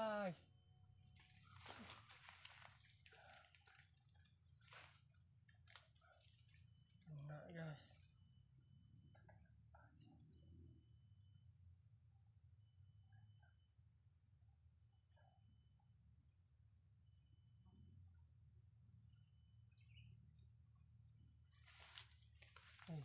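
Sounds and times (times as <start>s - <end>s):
crickets trilling: 0.0s - 23.0s.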